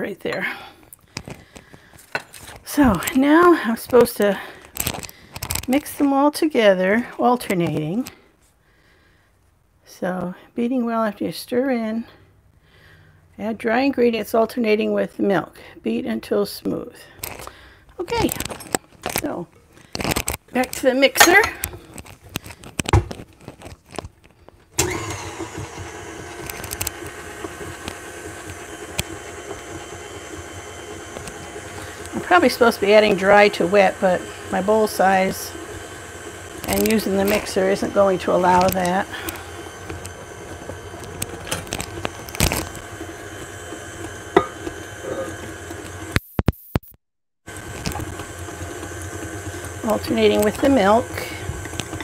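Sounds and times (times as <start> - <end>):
stand mixer motor whining: 24.8 - 46.2, 47.5 - 52.0.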